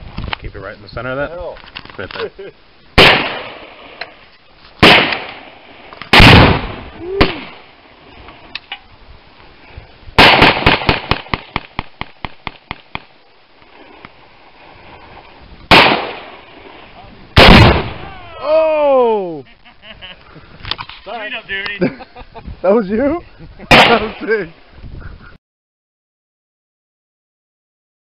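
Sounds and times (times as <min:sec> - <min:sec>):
gunshots: 0:03.0 - 0:04.0, 0:04.8 - 0:07.6, 0:10.2 - 0:13.1, 0:15.7 - 0:16.5, 0:17.4 - 0:18.1, 0:23.7 - 0:24.3
heavy explosion blast: 0:06.1 - 0:07.6, 0:17.4 - 0:18.2, 0:23.7 - 0:24.3.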